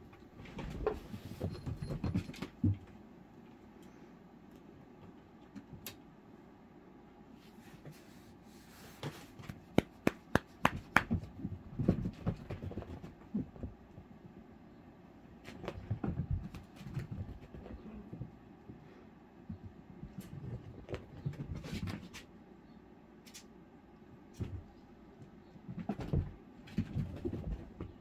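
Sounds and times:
kittens thumping on carpet: 0.3 - 3.0, 9.0 - 14.4, 15.4 - 18.8, 19.4 - 22.3, 24.3 - 28.0
sharp taps of paws: 9.0 - 14.1, 15.4 - 18.4, 19.4 - 22.3.

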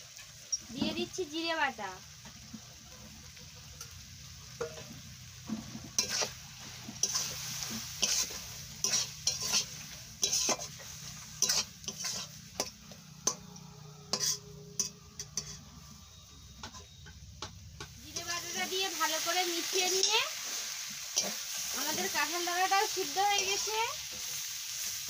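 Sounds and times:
curry sizzling: 0.0 - 25.0
metal spatula scraping pan: 4.6 - 16.0.

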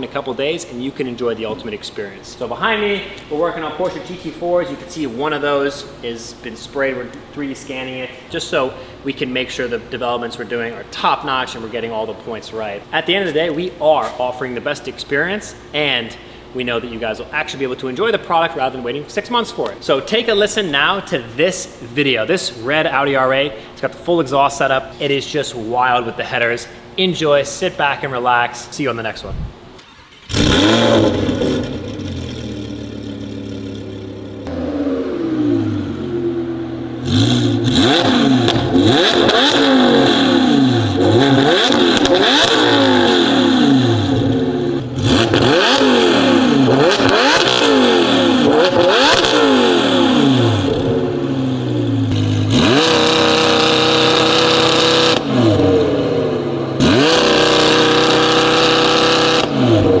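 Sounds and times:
car engine revving: 30.1 - 60.0.

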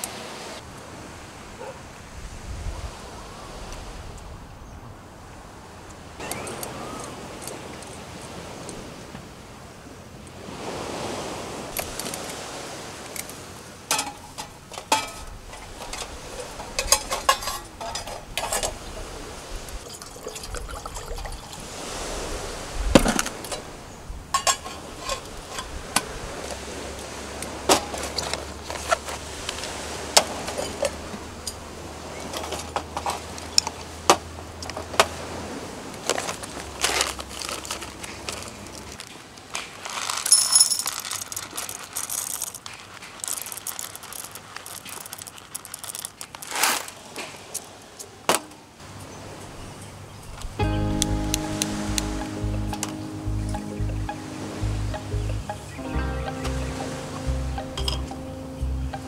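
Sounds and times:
metal cookware clinks and knocks: 13.9 - 18.7, 24.3 - 25.8
bag rustling: 36.0 - 47.2.

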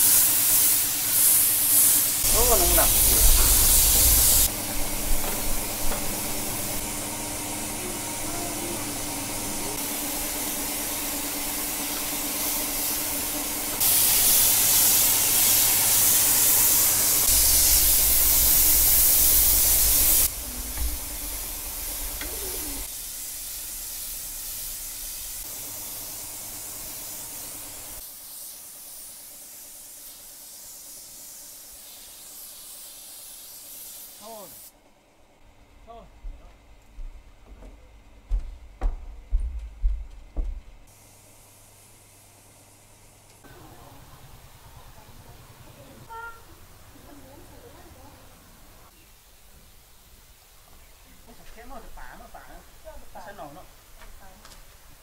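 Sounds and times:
hissing spray: 0.0 - 34.8.

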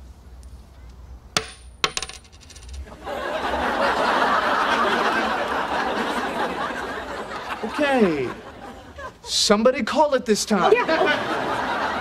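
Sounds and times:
coin flick ping: 1.4 - 2.8
coin landing clatter: 1.4 - 2.9
audience laughing: 2.9 - 9.3, 10.6 - 12.0.

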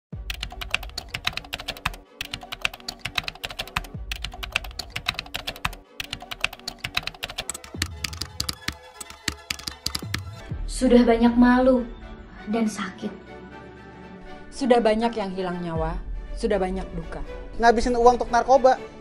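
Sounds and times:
soft background music: 0.2 - 19.0
keyboard typing clicks: 0.3 - 10.4.

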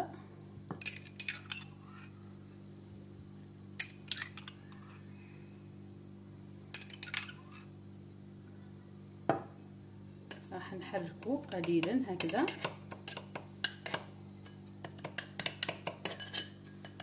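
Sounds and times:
steady low hum: 0.0 - 17.0
metal spoon clinking on glass: 0.8 - 1.8, 3.8 - 4.9, 6.7 - 7.7, 11.4 - 14.0, 14.9 - 17.0.

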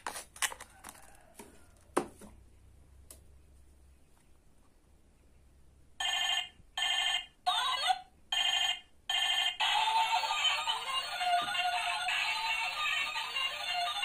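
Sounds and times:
toy phone electronic ring tones: 6.0 - 7.3, 8.4 - 14.0.

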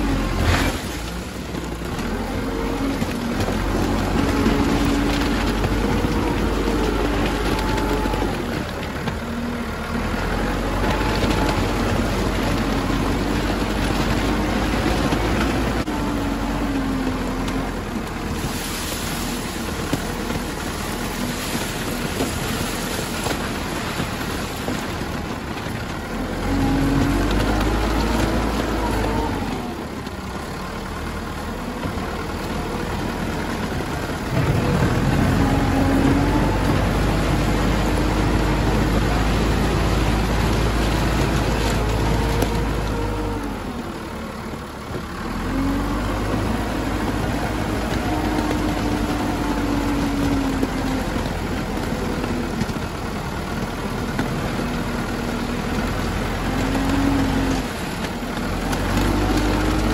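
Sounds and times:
tyres grinding over stone: 0.0 - 29.7
loader engine running: 0.0 - 59.9.

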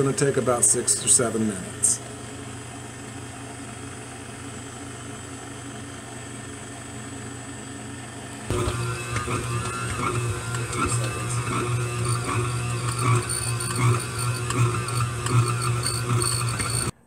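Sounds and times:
stand mixer motor hum: 0.0 - 17.0
dough churning in bowl: 8.4 - 17.0.

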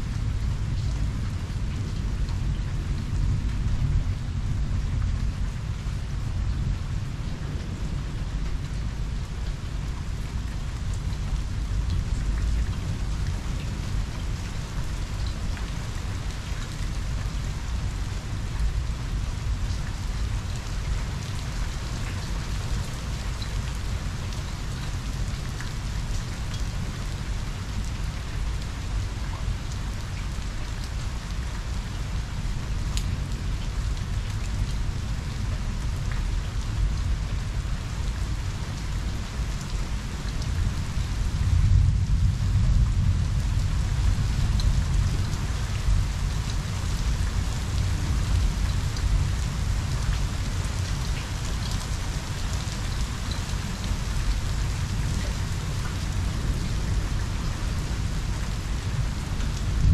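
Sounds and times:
heavy rain pattering: 0.0 - 59.9
low thunder rumble: 41.4 - 46.4, 59.6 - 59.9.

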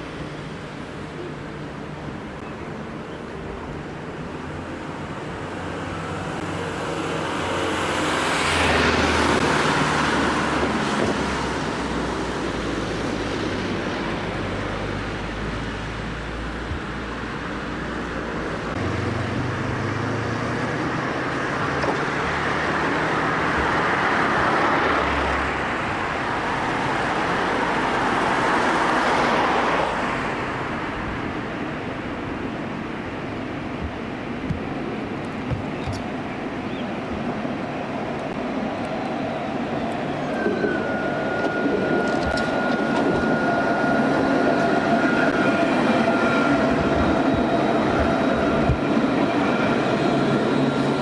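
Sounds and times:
vehicles driving past: 2.2 - 32.4.

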